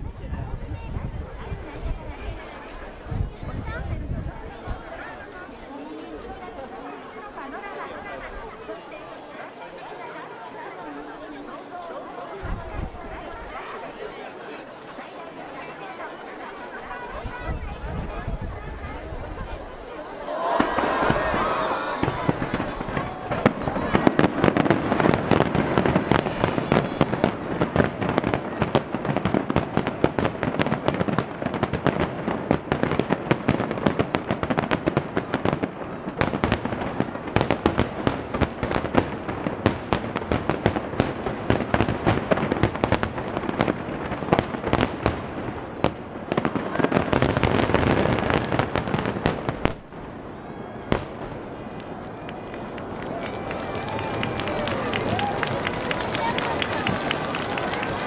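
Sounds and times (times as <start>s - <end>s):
firework crackling: 20.4s - 58.0s.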